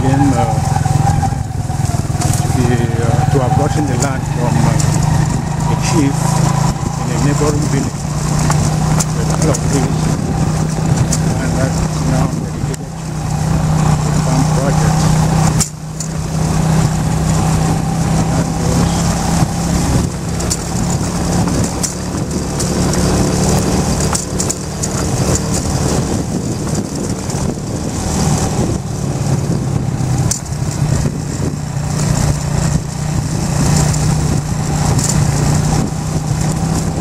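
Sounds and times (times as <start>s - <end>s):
motorcycle engine running: 0.0s - 37.0s.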